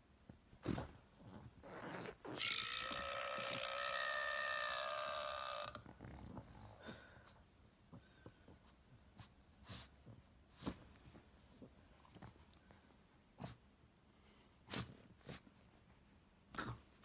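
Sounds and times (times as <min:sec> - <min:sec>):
toy burp sound: 0:02.4 - 0:05.9.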